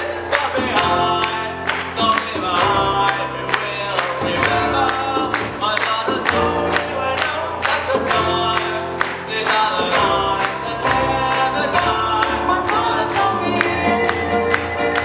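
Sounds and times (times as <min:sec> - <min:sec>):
acoustic guitars: 0:00.0 - 0:15.0
keyboard: 0:00.0 - 0:15.0
voices singing together: 0:09.3 - 0:15.0.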